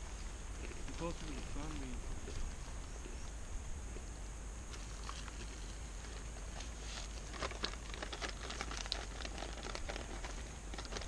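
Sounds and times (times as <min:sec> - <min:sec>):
steady low rumble: 0:00.0 - 0:10.9
food packets rustling: 0:06.8 - 0:11.0.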